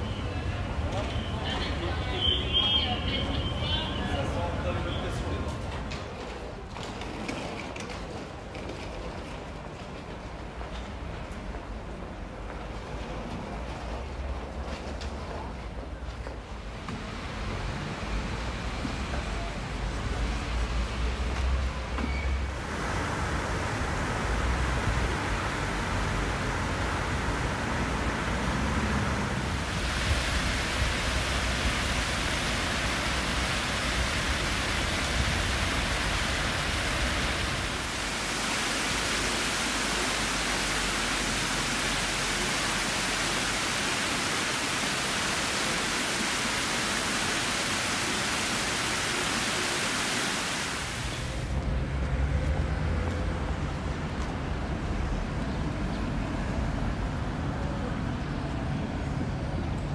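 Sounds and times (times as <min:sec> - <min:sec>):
tram rumbling through curve: 0:00.0 - 0:38.2, 0:51.4 - 0:59.9
fountain splashing into basin: 0:20.9 - 0:51.6.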